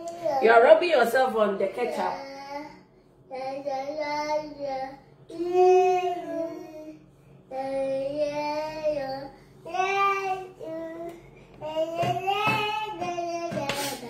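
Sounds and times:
toddler singing: 3.3s - 14.0s.

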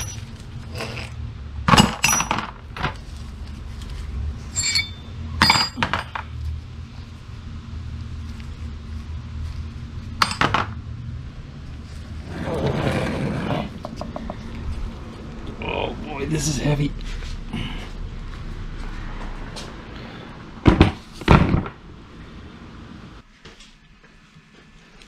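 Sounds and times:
metal tools clinking: 0.0s - 1.2s, 1.8s - 2.4s, 4.5s - 6.2s
metal scraping: 0.0s - 1.3s, 4.4s - 5.9s
steady low hum: 0.0s - 25.0s.

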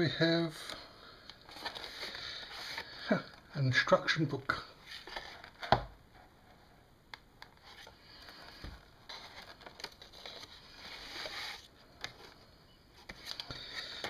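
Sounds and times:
cardboard and paper scraping: 7.6s - 12.3s.

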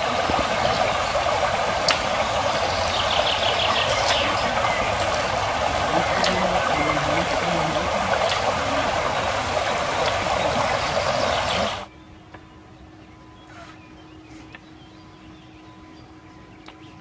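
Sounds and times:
brook rushing over stones: 0.0s - 11.9s.

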